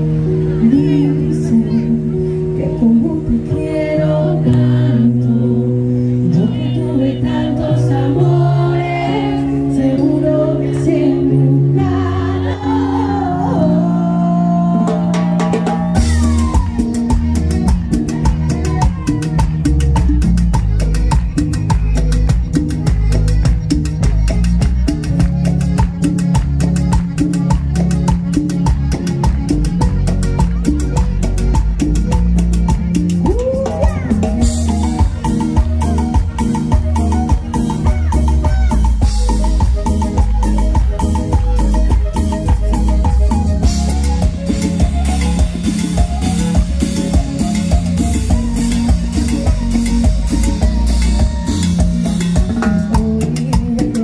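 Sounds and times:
accordion: 0.0s - 54.0s
heavy bass: 0.0s - 54.0s
live band music: 0.0s - 54.0s
voices singing: 2.8s - 16.8s
guitars: 14.5s - 54.0s
drum kit: 14.6s - 54.0s.

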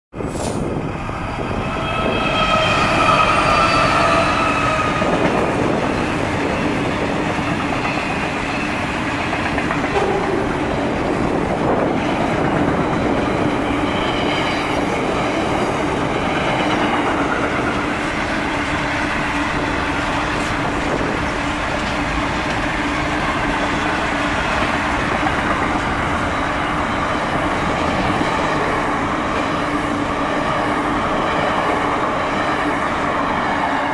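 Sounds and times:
freight train wheels rumbling: 0.1s - 33.9s
high ringing tones: 1.7s - 5.0s.

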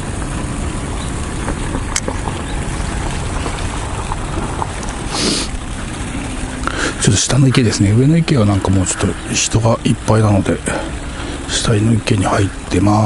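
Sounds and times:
wind buffeting microphone: 0.0s - 12.7s
short hiss: 5.1s - 5.6s.

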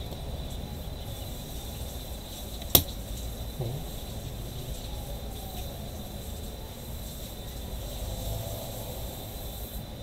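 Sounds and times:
background hiss and hum: 0.0s - 10.0s.

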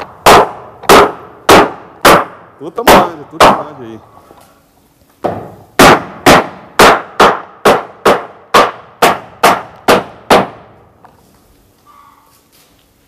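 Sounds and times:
hammer driving nails into wood: 0.0s - 3.6s, 5.2s - 10.7s.

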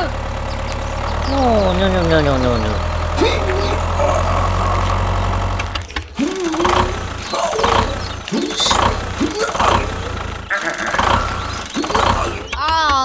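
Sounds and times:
small model tractor motor running: 0.0s - 13.0s
person humming and grunting: 3.2s - 5.1s, 6.1s - 13.0s.

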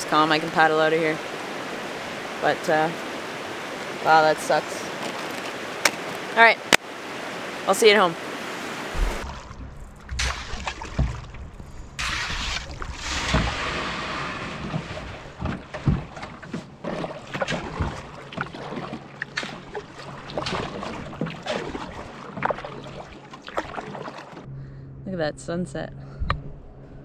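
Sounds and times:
water splashes: 0.0s - 24.5s
paddle strokes in water: 8.5s - 24.5s
water dripping off paddle: 14.6s - 24.5s.

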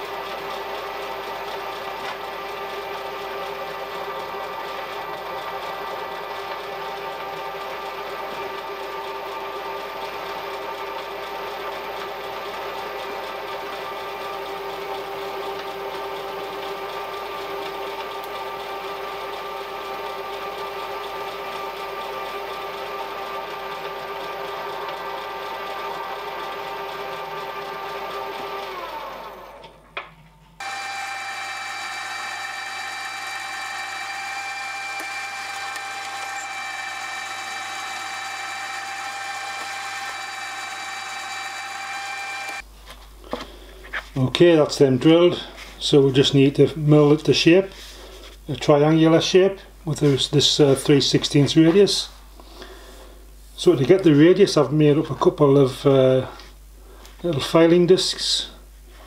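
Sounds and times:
milling machine drilling steel: 30.6s - 42.6s.

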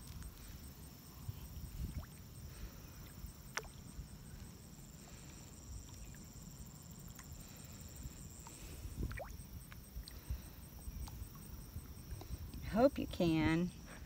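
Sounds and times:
wind rumbling on microphone: 0.0s - 4.5s, 7.4s - 14.0s.

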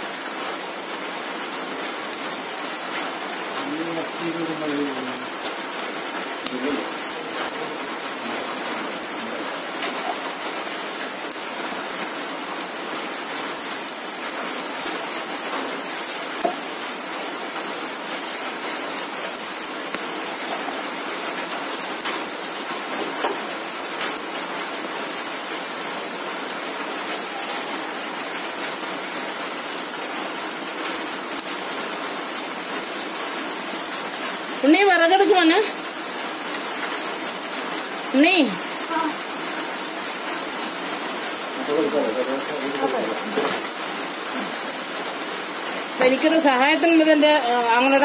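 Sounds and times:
burning wood crackling: 0.2s - 48.0s
fish sizzling on a grill: 3.3s - 15.4s, 40.3s - 45.4s.

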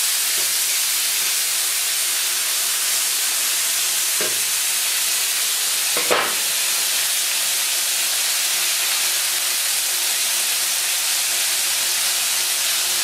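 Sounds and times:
eggs sizzling in a pan: 0.0s - 13.0s.

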